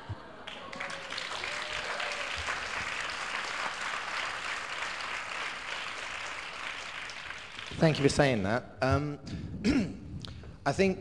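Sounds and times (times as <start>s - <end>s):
audience applauding: 0.4s - 8.3s.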